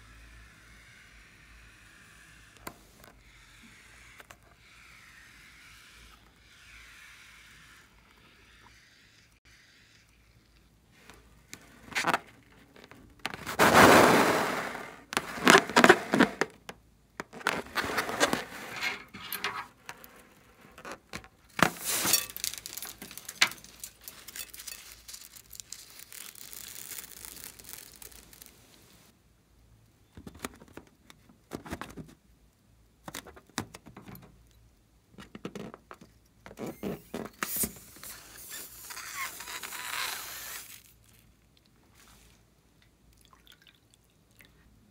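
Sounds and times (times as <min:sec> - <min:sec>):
crackling and squishing slime: 0:20.5 - 0:29.1.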